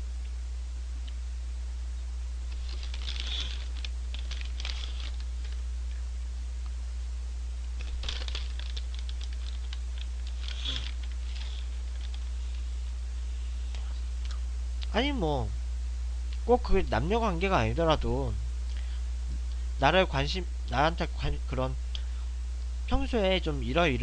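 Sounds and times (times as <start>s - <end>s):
steady low hum: 0.0s - 24.0s
paper bag crinkling: 2.5s - 5.6s, 7.8s - 12.6s.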